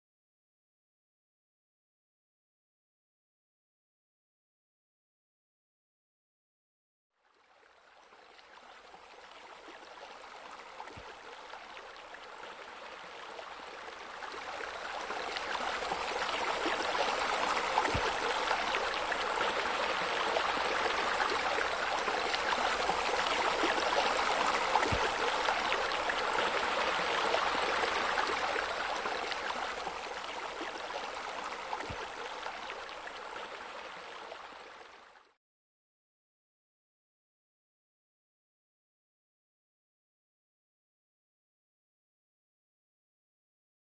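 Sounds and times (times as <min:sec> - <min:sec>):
waterfall splashing into pool: 0:22.3 - 0:28.4.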